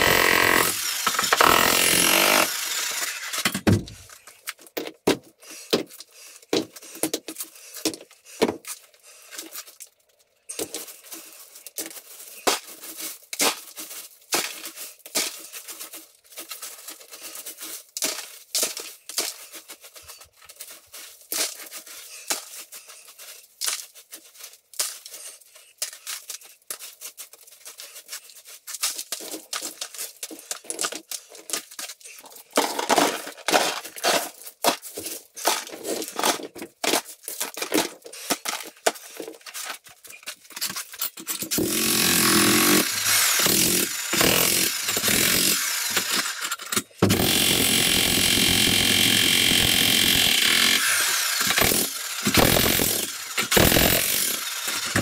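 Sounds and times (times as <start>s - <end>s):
jackhammer breaking concrete: 0.0s - 3.9s, 41.4s - 55.0s
concrete chunks dropped into bucket: 28.8s - 39.6s.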